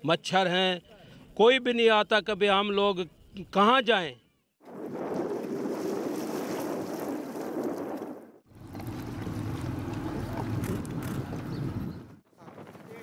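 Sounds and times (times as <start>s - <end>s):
wind on microphone: 4.7s - 13.0s
moving floodwater: 5.0s - 12.0s.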